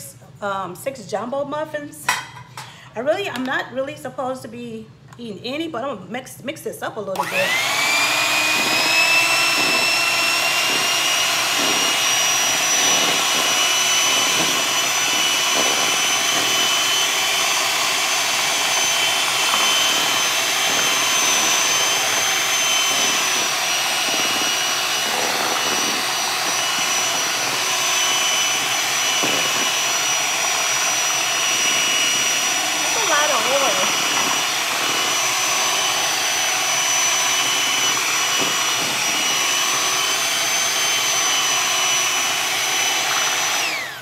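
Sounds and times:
electric hand mixer whining: 7.1s - 44.0s.

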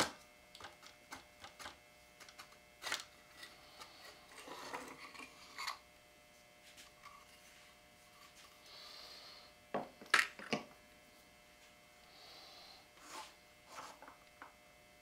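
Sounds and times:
soft breaths: 8.3s - 9.6s, 12.0s - 13.4s.

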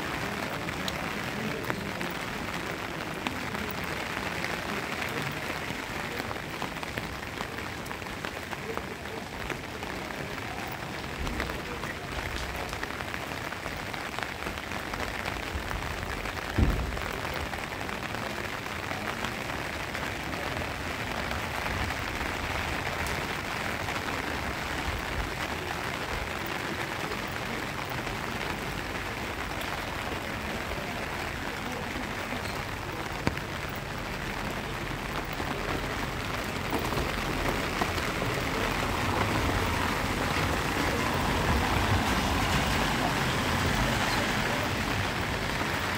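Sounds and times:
rain on pavement: 0.0s - 45.9s
low thump: 16.6s - 17.0s.

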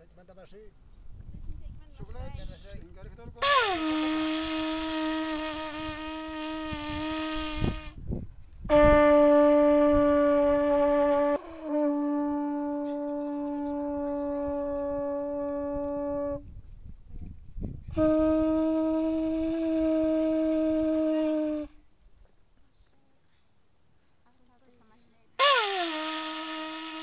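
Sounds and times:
horn trumpet blasts: 3.4s - 16.5s, 17.9s - 21.8s, 25.4s - 27.0s.

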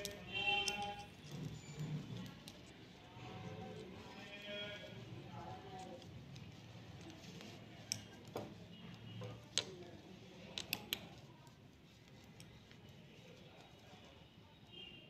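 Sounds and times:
knitting needles clicking: 0.0s - 2.9s, 5.6s - 8.4s, 9.5s - 12.8s.

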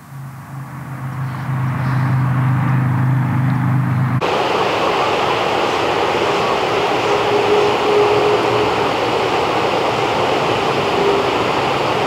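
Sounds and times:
low engine drone: 0.0s - 12.0s
loud rushing noise: 1.2s - 12.0s.

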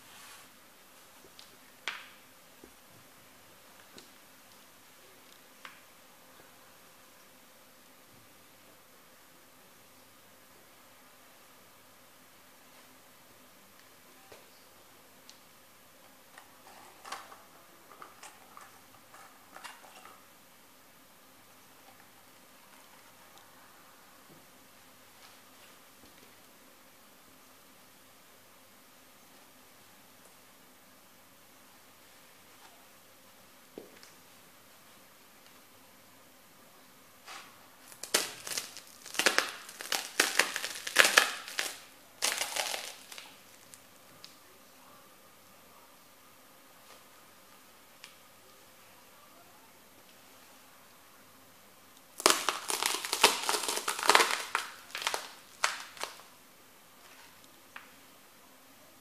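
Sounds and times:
breadsticks cracking underfoot: 37.4s - 44.4s, 52.2s - 56.3s.

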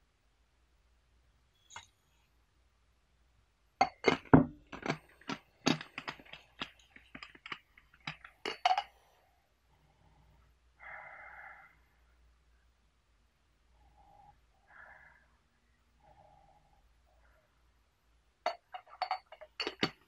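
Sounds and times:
tea leaves clinking against glass: 18.5s - 20.0s.

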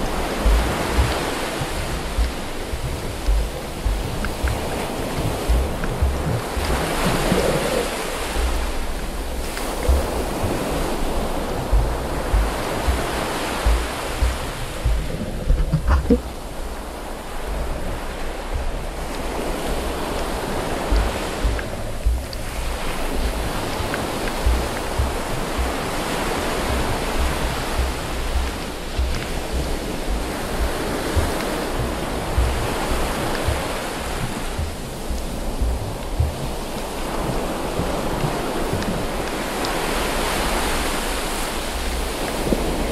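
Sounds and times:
low underwater thumps: 0.0s - 40.8s, 41.4s - 42.9s
muffled underwater rushing: 0.0s - 42.9s.

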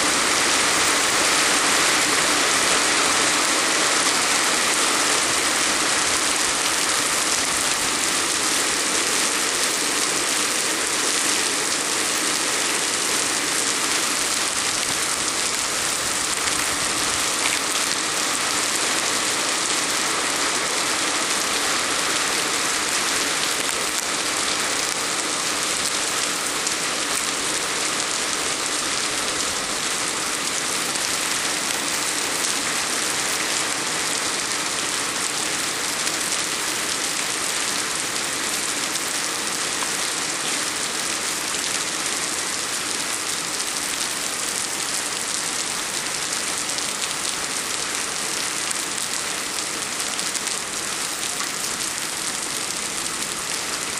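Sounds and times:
heavy rain pouring: 0.0s - 53.9s.

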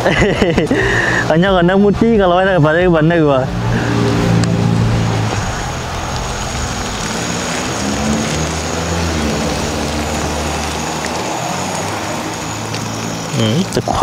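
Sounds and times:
engine drone: 0.0s - 14.0s.

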